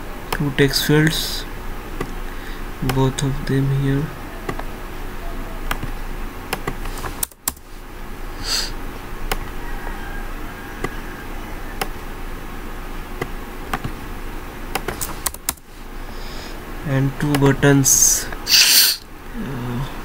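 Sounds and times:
background hiss and low hum: 0.0 - 20.0
computer mouse clicks: 5.7 - 7.6.

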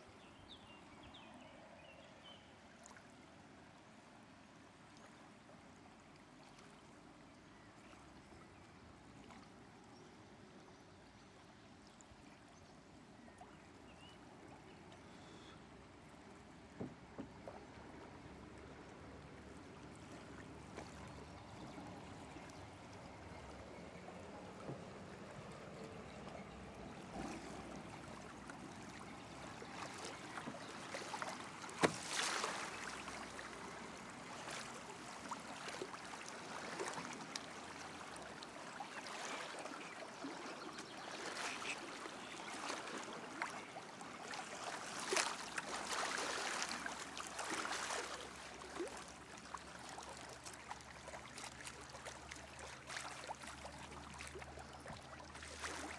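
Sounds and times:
river water lapping: 0.0 - 55.9
paddle splashes: 16.3 - 55.9.

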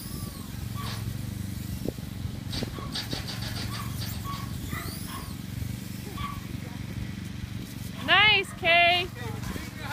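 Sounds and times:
small motor humming: 0.0 - 7.9
high squeaks and chirps: 2.8 - 5.5.

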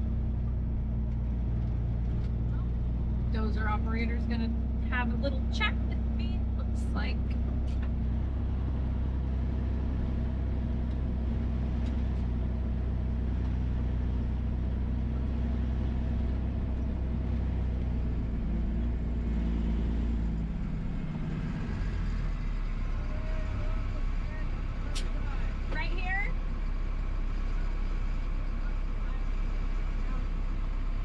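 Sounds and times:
diesel truck engine running: 0.0 - 31.0.

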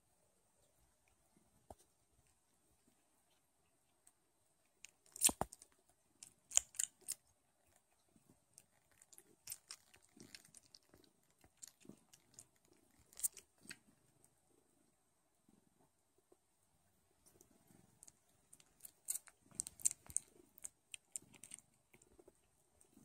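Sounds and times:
kittens suckling smacking clicks: 4.9 - 7.2, 18.0 - 21.6.

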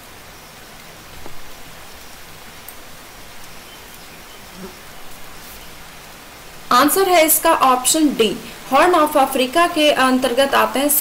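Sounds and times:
recording hiss: 0.0 - 11.0.

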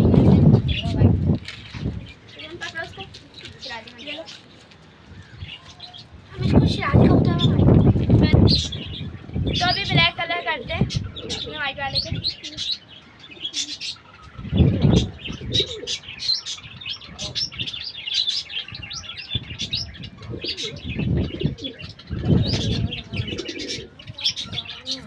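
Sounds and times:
pigeons cooing: 5.4 - 25.0.

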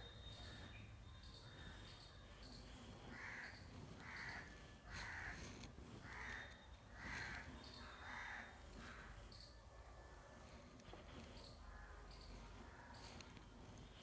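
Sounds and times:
faint high chirping: 0.0 - 4.4
crow cawing: 3.1 - 5.4, 6.0 - 9.1.

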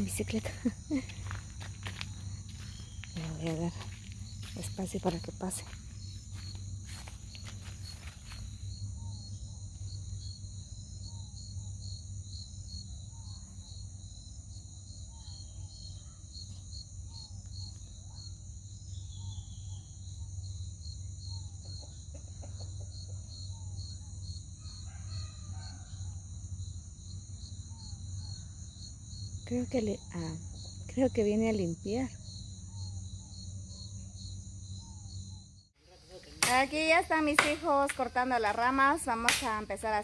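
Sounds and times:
insects droning: 0.0 - 40.0
rooster crowing: 24.6 - 26.3.

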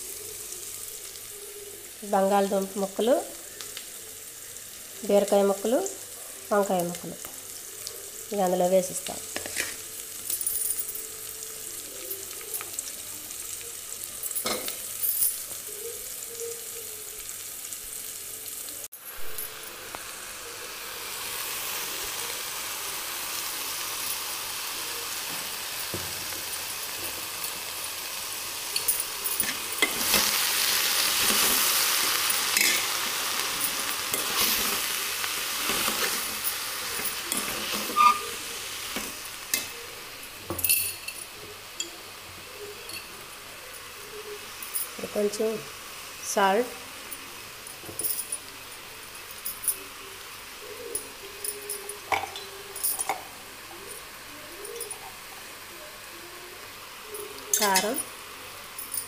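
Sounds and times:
vegetables sizzling in oil: 0.0 - 59.0
spatula scraping a pot: 37.0 - 38.4.

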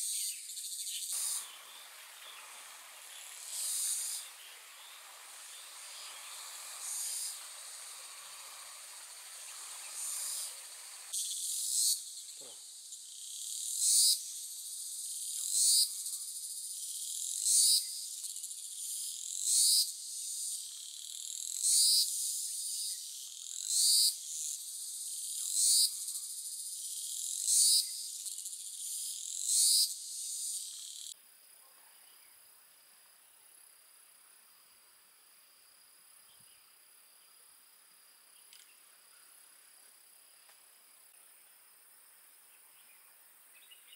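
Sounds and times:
pulsing insect call: 0.0 - 31.2
high-pitched insect chorus: 0.0 - 43.9.

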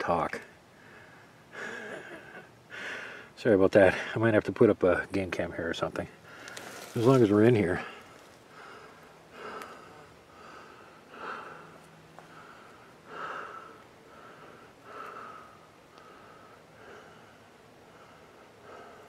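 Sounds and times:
man breathing: 0.7 - 1.9, 2.7 - 3.4, 6.2 - 6.9, 7.7 - 19.0.

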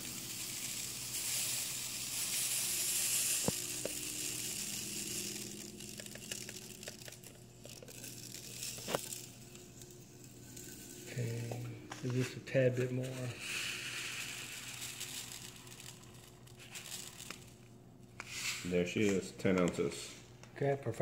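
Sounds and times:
beads pouring into a cup: 0.0 - 19.2.

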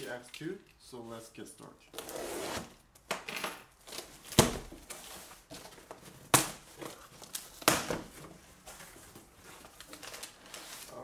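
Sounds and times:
cardboard rustling and tearing: 3.8 - 11.0.

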